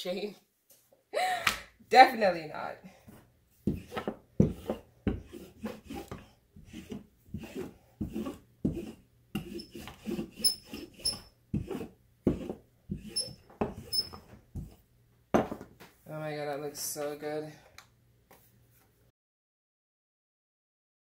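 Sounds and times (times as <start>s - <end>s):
rolling pin rolling dough: 3.1s - 14.9s
wood knocking on counter: 15.3s - 15.8s.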